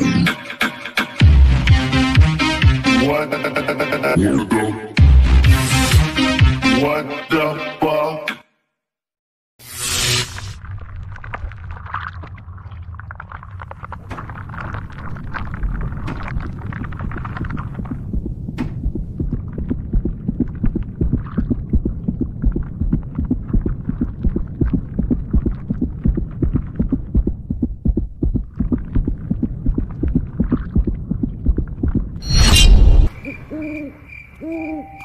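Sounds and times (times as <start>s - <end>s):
low throbbing rumble: 12.4s - 33.1s
loud crash: 32.2s - 33.1s.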